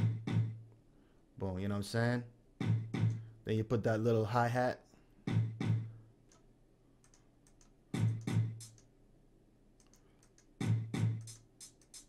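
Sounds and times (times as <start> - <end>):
light hi-hat ticks: 7.0 - 8.9, 9.8 - 12.0.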